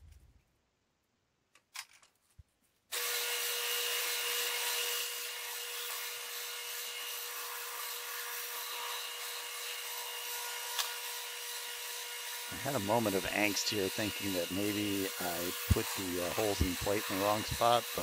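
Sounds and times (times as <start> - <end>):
drill press drilling metal: 3.0 - 18.0.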